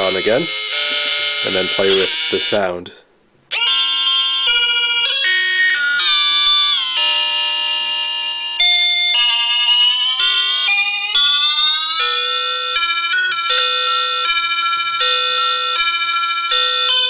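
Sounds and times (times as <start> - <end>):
electronic toy tones: 3.5 - 14.2.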